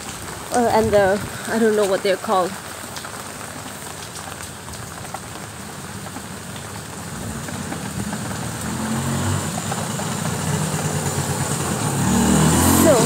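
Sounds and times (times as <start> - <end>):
steady rain falling: 0.0 - 13.0
vehicle engine rumble: 0.0 - 13.0.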